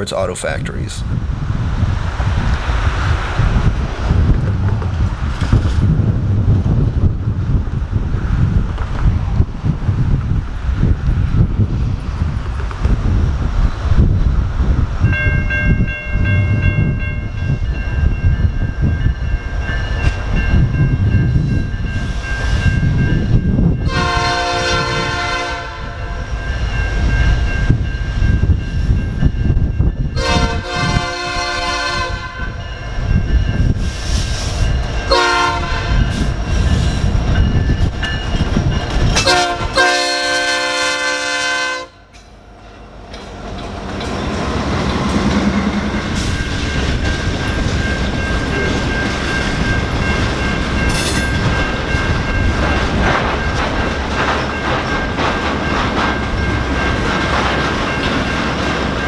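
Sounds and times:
diesel locomotives rumbling: 0.0 - 59.0
train cars clickety-clack: 3.7 - 10.3, 11.8 - 13.5, 15.1 - 59.0
train air horn blasts: 23.8 - 26.1, 30.2 - 32.6, 35.1 - 36.1, 39.2 - 42.1.

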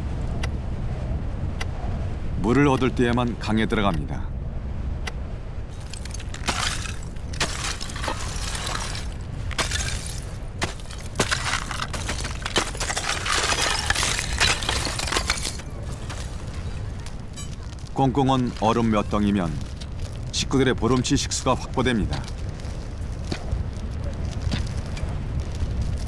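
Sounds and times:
ice pieces crunching and clinking: 5.8 - 23.4
ice cracking and knocking: 5.8 - 26.0.

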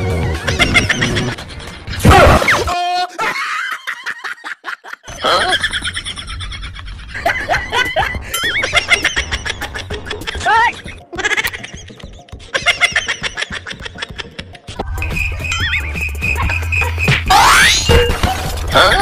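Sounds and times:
background music: 0.0 - 3.7, 5.1 - 19.0
canned laughter: 0.2 - 1.8, 3.1 - 14.7
cartoon sound effects: 15.5 - 18.9.

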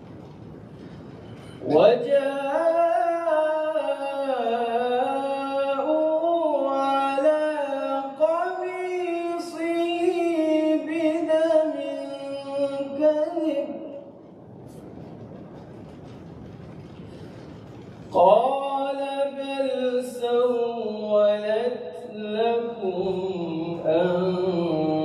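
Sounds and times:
man reciting in melodic chant: 1.6 - 14.2, 18.1 - 25.0.

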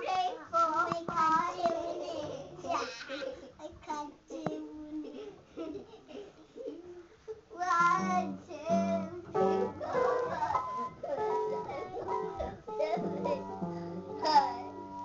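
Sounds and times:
child singing: 0.0 - 2.9, 7.6 - 10.4
piano notes: 7.8 - 15.0.

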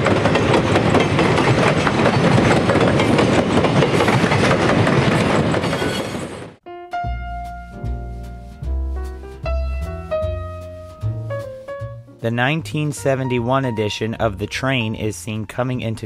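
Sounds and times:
train wheels clicking on rail joints: 0.0 - 6.4
piano music: 6.6 - 16.0.

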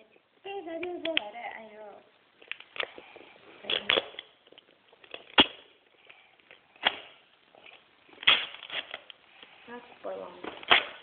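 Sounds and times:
tape ripping off cardboard: 5.1 - 5.6, 6.8 - 7.2, 8.2 - 9.1, 10.6 - 11.0.

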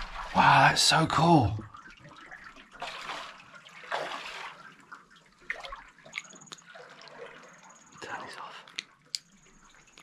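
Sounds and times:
paddle splashing water: 0.0 - 0.9, 1.7 - 7.9
water drips: 0.0 - 10.0.

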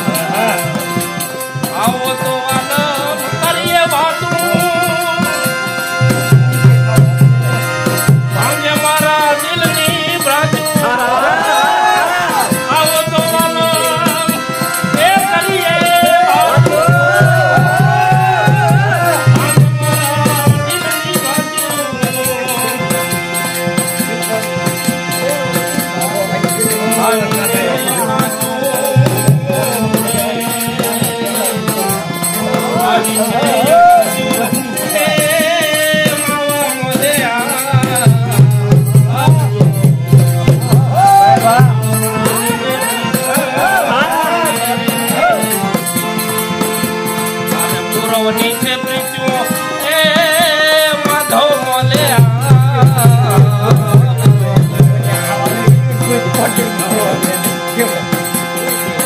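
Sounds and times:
harmonium chords and melody: 0.0 - 59.0
man singing: 0.0 - 59.0
percussion keeping beat: 0.0 - 59.0.

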